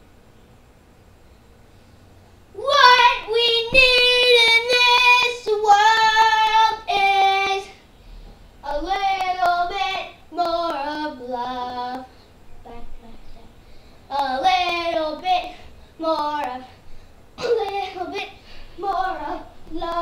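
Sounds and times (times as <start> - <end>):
child singing: 2.6 - 7.8, 8.6 - 16.7, 17.4 - 20.0.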